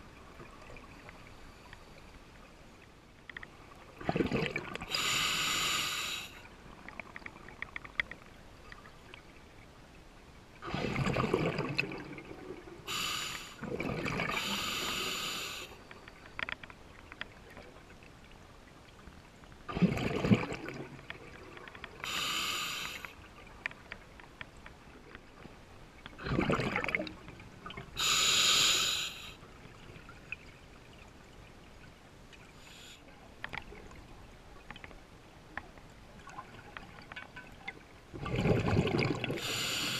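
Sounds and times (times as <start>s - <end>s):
exhaled bubbles underwater: 3.9s - 5.0s, 10.6s - 12.8s, 13.6s - 14.6s, 19.7s - 21.6s, 26.2s - 28.1s, 38.1s - 39.9s
air hissing through regulator: 4.9s - 6.4s, 12.9s - 13.6s, 14.3s - 15.8s, 22.0s - 23.1s, 28.0s - 29.4s, 39.4s - 39.9s.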